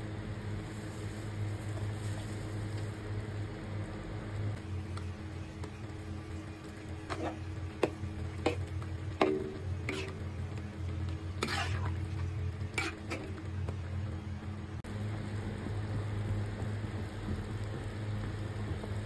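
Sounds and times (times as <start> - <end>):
low hum and hiss: 0.0 - 19.0
ladle stirring soup: 7.1 - 10.3, 11.4 - 13.4.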